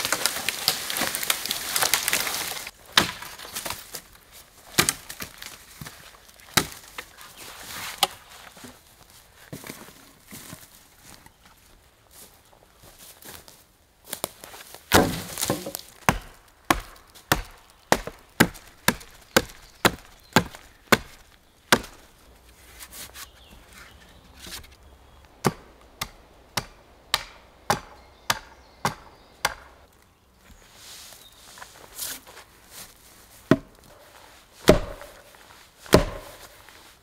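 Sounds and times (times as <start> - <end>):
hatchet chopping wood: 2.9 - 3.5, 4.7 - 5.3, 6.5 - 6.8, 14.9 - 22.0, 25.4 - 29.7, 33.5 - 33.8, 34.6 - 35.2, 35.9 - 36.5.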